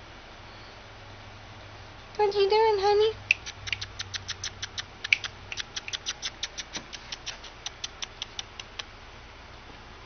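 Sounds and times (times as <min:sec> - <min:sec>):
baby rabbit clicking: 0:03.2 - 0:09.0.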